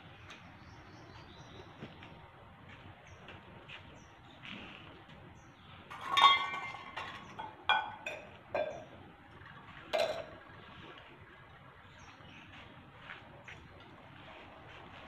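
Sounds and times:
steel utensils clinking: 0:05.9 - 0:08.9.

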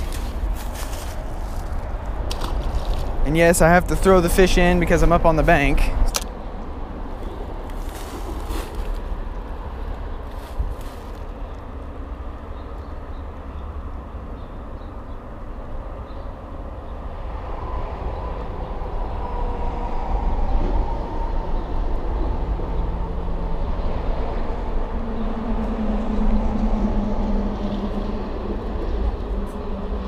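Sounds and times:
passing vehicle rumble: 0:17.1 - 0:30.0.

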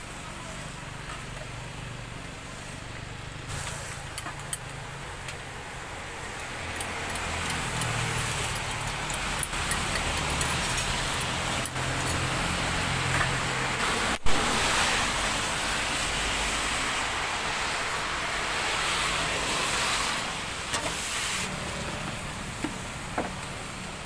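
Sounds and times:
broad hiss: 0:03.5 - 0:04.2, 0:12.5 - 0:24.0.

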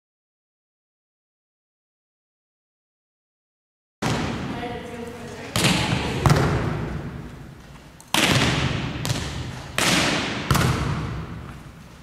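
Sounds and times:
volleyball smacks echoing in gym: 0:04.0 - 0:11.8.

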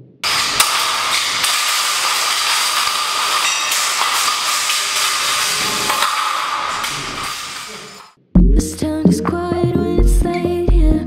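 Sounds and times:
loud hiss of work noise: 0:00.2 - 0:08.1
ringing metal scrape: 0:00.2 - 0:08.1.

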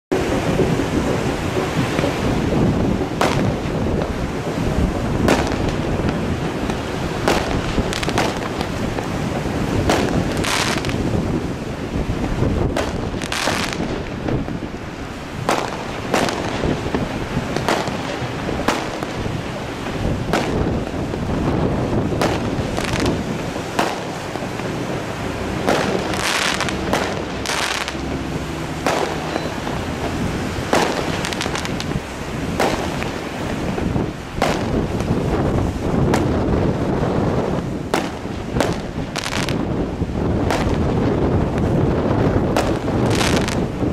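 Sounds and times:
steady background rush: 0:00.2 - 0:43.9
high firework hiss: 0:01.4 - 0:39.8, 0:40.4 - 0:43.9
firework shells firing: 0:03.0 - 0:04.1, 0:05.2 - 0:11.0, 0:12.6 - 0:14.5, 0:15.4 - 0:24.8, 0:25.5 - 0:33.8, 0:34.4 - 0:35.1, 0:37.9 - 0:39.7.

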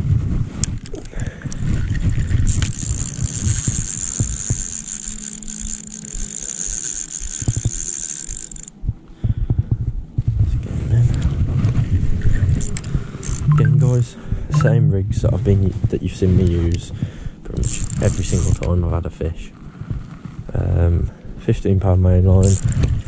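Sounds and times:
wind rumbling on microphone: 0:00.0 - 0:05.9, 0:08.7 - 0:23.0
fishing reel buzzing: 0:01.5 - 0:08.8, 0:12.3 - 0:14.0, 0:17.5 - 0:18.7, 0:22.4 - 0:22.9.

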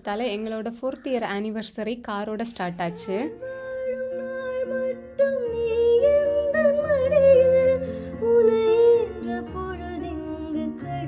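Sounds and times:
song with sung melody: 0:02.9 - 0:11.0.

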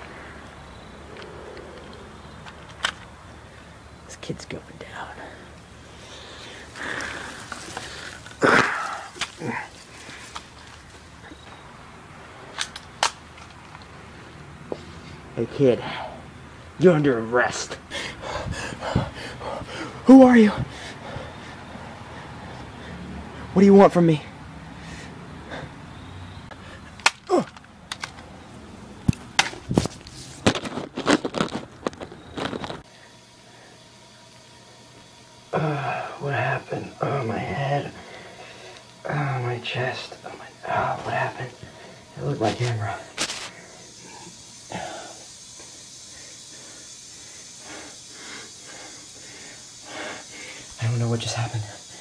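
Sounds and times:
steady hiss: 0:00.0 - 0:52.0
person breathing heavily: 0:04.9 - 0:10.5, 0:14.8 - 0:16.4, 0:17.8 - 0:23.5, 0:24.3 - 0:27.0, 0:37.9 - 0:38.9, 0:40.5 - 0:42.2, 0:42.8 - 0:52.0.

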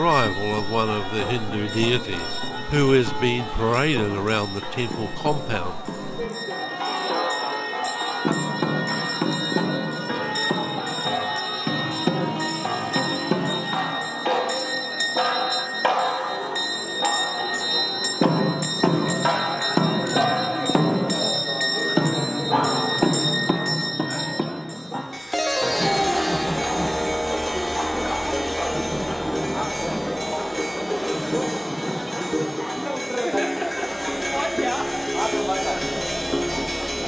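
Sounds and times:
procession music: 0:00.0 - 0:06.3, 0:25.4 - 0:37.0.

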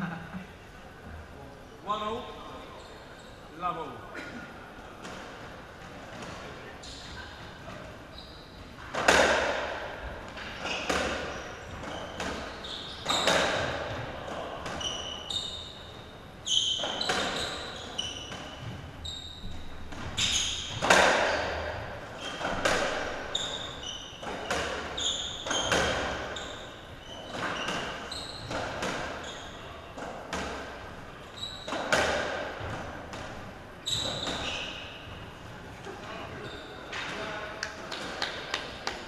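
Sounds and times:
shoes squeaking on court: 0:02.7 - 0:03.6, 0:05.0 - 0:09.4, 0:10.2 - 0:39.0
ball hitting court walls: 0:08.8 - 0:15.2, 0:16.6 - 0:34.9
racket hitting ball: 0:08.9 - 0:09.9, 0:19.9 - 0:21.8, 0:22.4 - 0:23.3.

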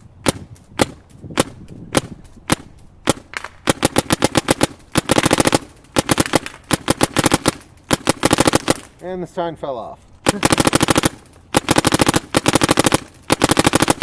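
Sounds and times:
paintball marker firing: 0:00.0 - 0:09.0, 0:10.2 - 0:14.0.

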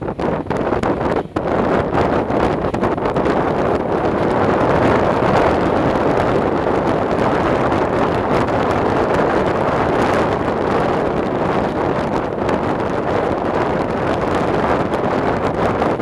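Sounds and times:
train running noise: 0:00.0 - 0:16.0
wind rushing over microphone: 0:00.0 - 0:16.0.

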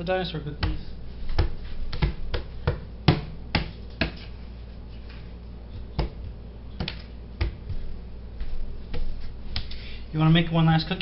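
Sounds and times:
hands slapping countertop: 0:05.8 - 0:09.8.

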